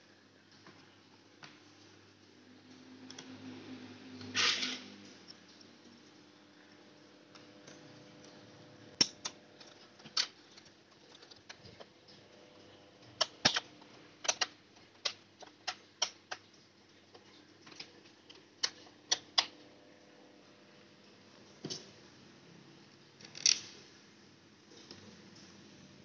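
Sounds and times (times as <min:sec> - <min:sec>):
plastic clicks and snaps: 0:09.0 - 0:11.9, 0:13.0 - 0:16.5, 0:17.2 - 0:19.5.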